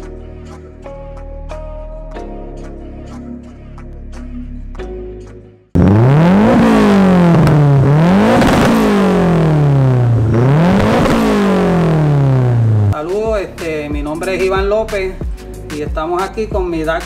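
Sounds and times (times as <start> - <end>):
background music: 0.0 - 17.0
car engine revving hard: 5.8 - 13.0.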